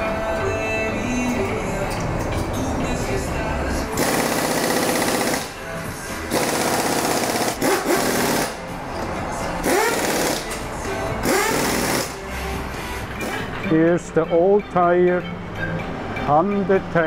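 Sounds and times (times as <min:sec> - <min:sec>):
pneumatic impact wrench hammering: 0:03.9 - 0:05.6, 0:06.3 - 0:08.6, 0:09.6 - 0:10.6, 0:11.2 - 0:12.2, 0:13.2 - 0:13.5.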